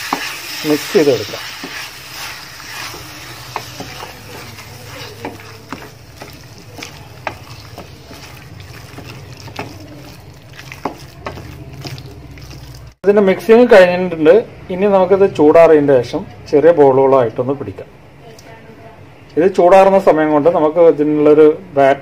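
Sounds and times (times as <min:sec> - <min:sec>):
spatula stirring thick mash: 0:00.0 - 0:13.0
spatula knocking on metal pan: 0:03.5 - 0:11.5.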